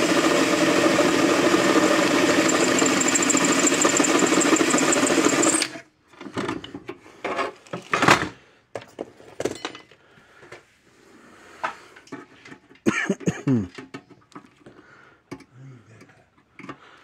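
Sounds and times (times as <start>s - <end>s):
power drill running: 0.0s - 5.8s.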